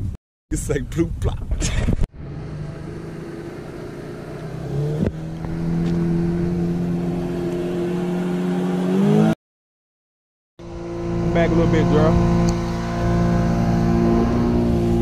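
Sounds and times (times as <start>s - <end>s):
engine running: 2.1s - 9.4s, 10.6s - 15.0s.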